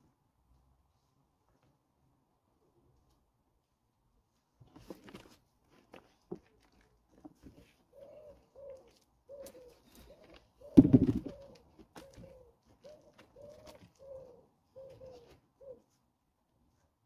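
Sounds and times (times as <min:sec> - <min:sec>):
pigeon cooing: 0:07.8 - 0:16.0.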